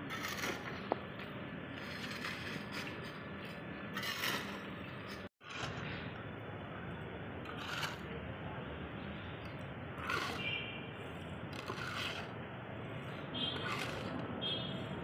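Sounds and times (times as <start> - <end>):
trowel scraping cement and grit: 0.0 - 1.0, 1.7 - 5.9, 7.4 - 8.1, 10.0 - 14.3.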